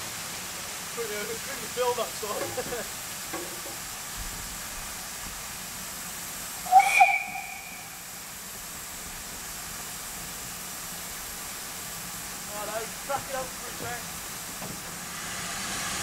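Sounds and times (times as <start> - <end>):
steam hissing: 0.0 - 16.0
steam whistle blast: 6.6 - 8.2.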